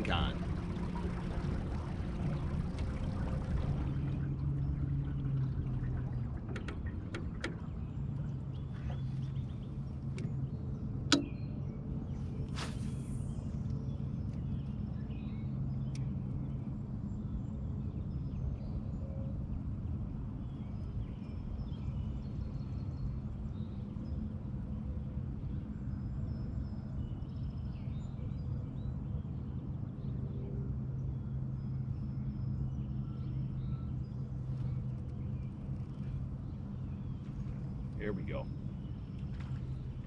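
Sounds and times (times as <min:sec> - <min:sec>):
boat motor humming: 0:00.0 - 0:18.2, 0:30.7 - 0:40.0.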